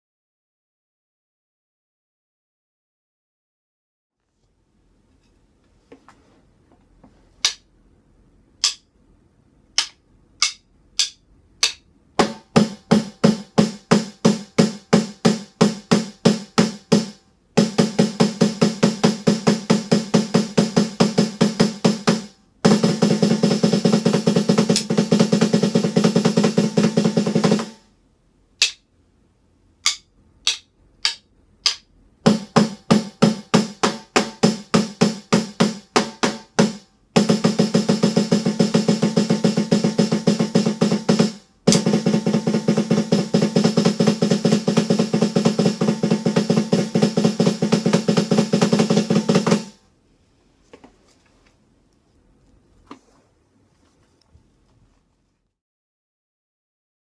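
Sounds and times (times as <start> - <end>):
electronic snare drum hits: 9.8 - 27.9, 29.8 - 49.8
snare drum roll: 11.0 - 27.9, 32.2 - 49.8.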